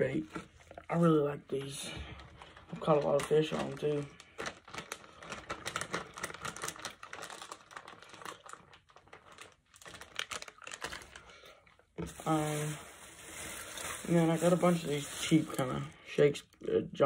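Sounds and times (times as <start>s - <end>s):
plastic packaging crackling: 1.6s - 16.1s.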